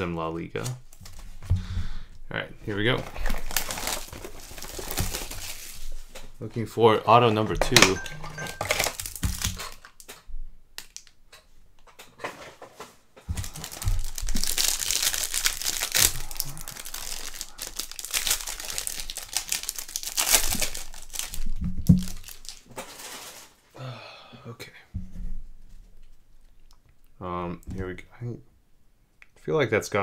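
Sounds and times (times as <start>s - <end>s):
plastic wrapper tearing and crinkling: 2.8s - 6.2s, 8.7s - 10.2s, 10.8s - 11.2s, 13.3s - 23.6s.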